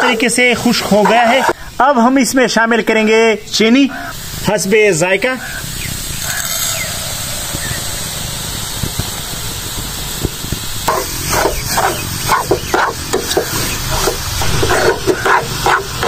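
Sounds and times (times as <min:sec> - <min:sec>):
spoon scraping a pan: 0:00.0 - 0:01.6, 0:10.9 - 0:16.0
food sizzling in a pan: 0:04.0 - 0:16.0.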